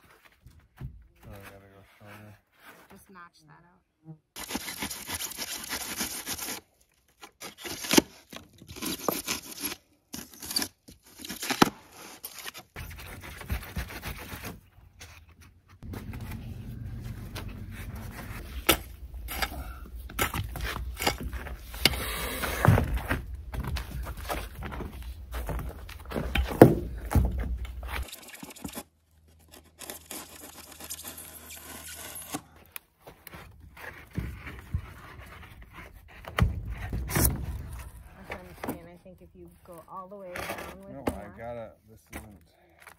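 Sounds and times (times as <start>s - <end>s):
foam board scraping and tearing: 4.4s - 15.1s, 26.1s - 32.6s.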